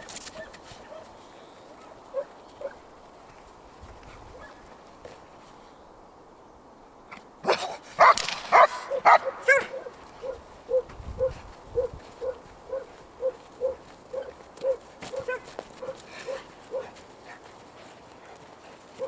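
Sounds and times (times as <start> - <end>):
footsteps crunching through snow: 0.0 - 5.7, 8.0 - 19.0
dog barking: 0.4 - 1.1, 1.8 - 2.8, 7.5 - 17.0.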